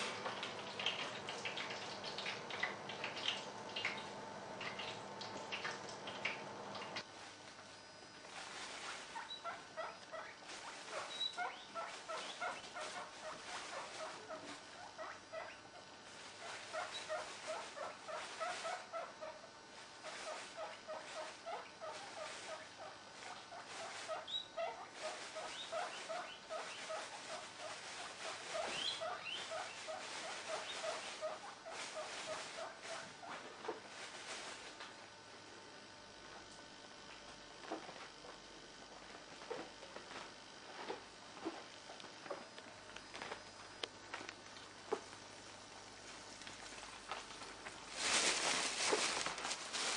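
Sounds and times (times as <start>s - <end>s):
squirrel eating clicks: 0.2s - 6.9s.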